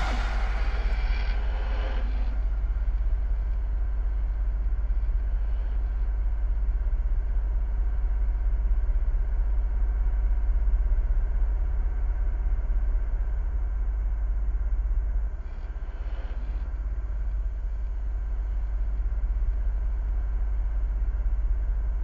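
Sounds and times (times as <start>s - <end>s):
deep low rumble: 0.0s - 12.1s.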